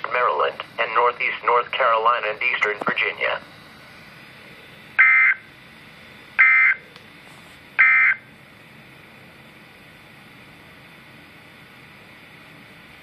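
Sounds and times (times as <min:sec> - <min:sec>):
digital data tone bursts: 0:05.0 - 0:05.5, 0:06.4 - 0:06.8, 0:07.8 - 0:08.2.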